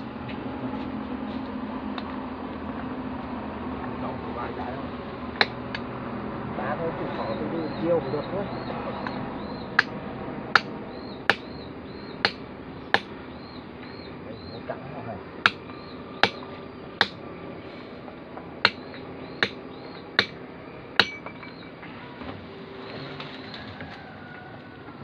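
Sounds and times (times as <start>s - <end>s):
hammer striking chisel on rock: 10.5s - 11.6s, 12.2s - 13.1s, 15.4s - 16.4s, 17.0s - 17.2s, 18.6s - 19.6s, 20.2s - 20.4s, 21.0s - 21.7s.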